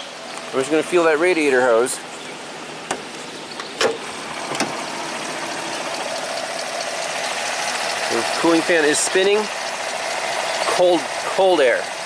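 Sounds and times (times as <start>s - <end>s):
car engine running: 0.0s - 12.0s
hood latch clicking: 2.8s - 4.8s.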